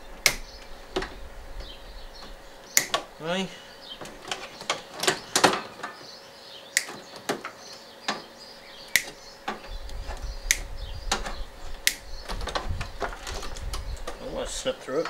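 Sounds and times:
low rumble: 8.7s - 14.4s.

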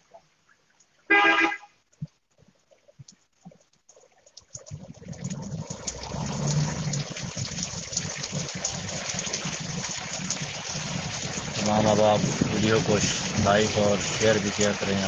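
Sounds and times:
heavy rain pouring: 5.8s - 15.0s.

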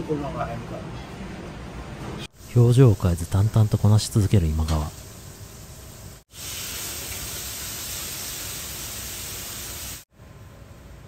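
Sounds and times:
kitchen hiss: 2.3s - 10.1s
steaks sizzling on hot plates: 5.0s - 10.0s.

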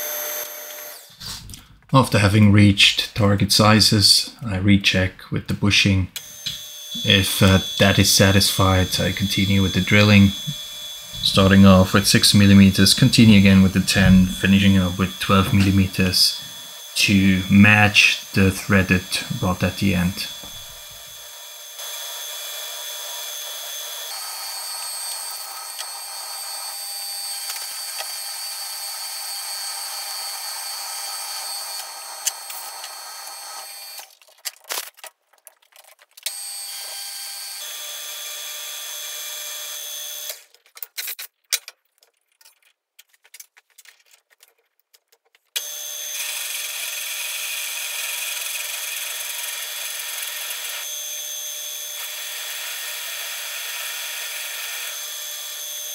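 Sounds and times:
metal lathe drilling whine: 0.0s - 1.1s, 6.2s - 34.1s, 36.3s - 40.4s, 45.6s - 55.9s.

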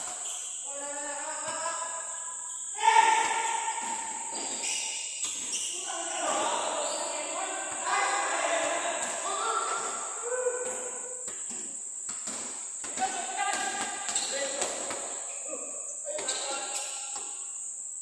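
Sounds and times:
high-pitched insect drone: 0.0s - 18.0s
players shouting: 2.8s - 4.3s, 5.7s - 11.2s
basketball bouncing: 2.8s - 15.3s.

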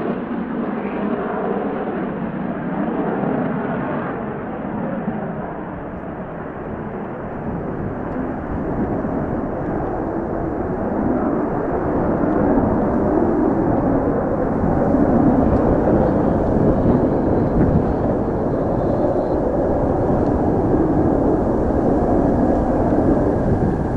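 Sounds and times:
jet engine roaring: 0.0s - 23.9s
wind buffeting microphone: 5.4s - 23.9s.

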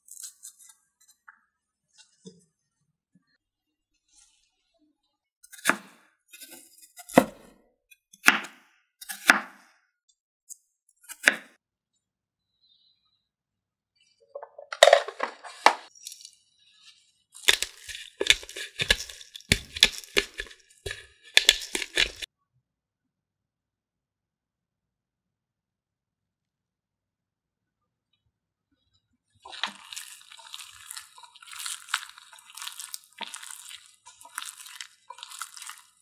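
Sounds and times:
knife chopping on wooden board: 7.0s - 7.5s, 8.2s - 9.6s, 17.5s - 22.3s.

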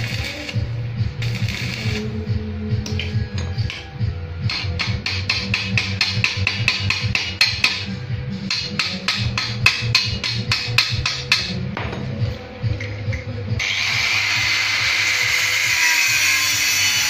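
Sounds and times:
background music: 0.0s - 17.0s
hammer tapping on steel: 4.5s - 7.9s, 8.5s - 11.6s.

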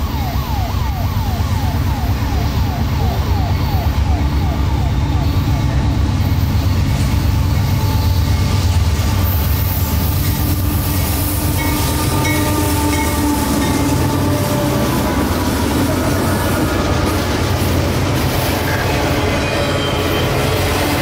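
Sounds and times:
train wheels rumbling on rail: 0.0s - 21.0s
wheels squealing: 5.3s - 21.0s.

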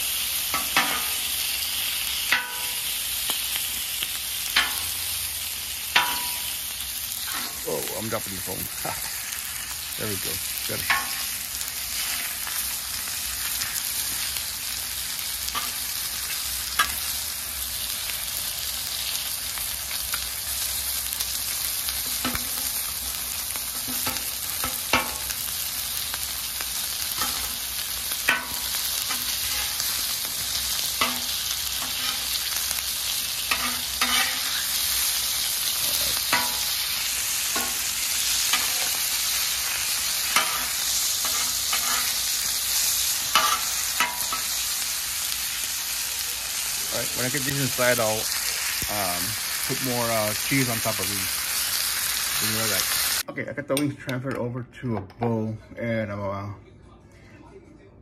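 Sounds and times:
chicken wings sizzling on griddle: 0.0s - 53.3s
metal spatula scraping griddle: 0.5s - 1.2s, 7.2s - 7.7s, 10.8s - 14.4s, 27.1s - 27.6s, 28.2s - 36.8s, 37.4s - 44.6s.

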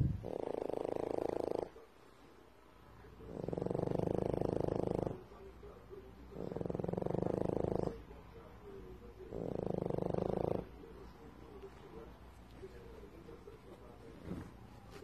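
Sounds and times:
dog snoring: 0.0s - 1.8s, 3.2s - 5.3s, 6.3s - 8.1s, 9.2s - 10.8s, 14.1s - 14.6s.

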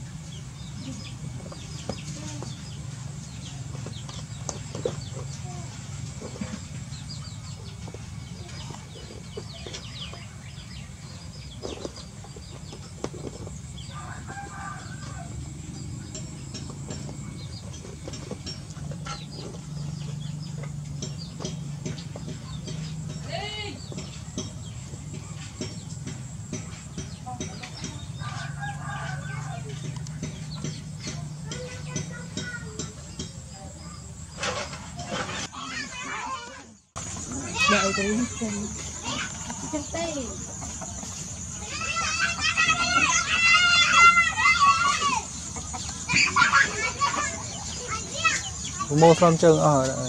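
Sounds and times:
birds chirping: 0.0s - 50.0s
chickens clucking: 0.0s - 50.0s
steady low hum: 0.0s - 50.0s
rooster crowing: 13.9s - 15.8s, 28.2s - 29.8s.

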